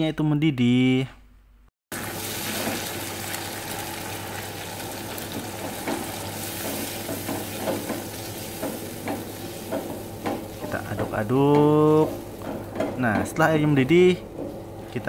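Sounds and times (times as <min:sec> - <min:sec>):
chili paste sizzling in pan: 0:01.9 - 0:10.7.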